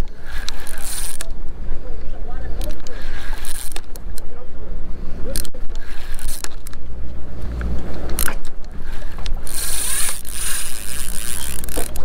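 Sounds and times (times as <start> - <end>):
fishing reel cranking: 0.0 - 1.6, 2.5 - 4.3, 5.1 - 12.0
boat engine hum: 0.0 - 12.0.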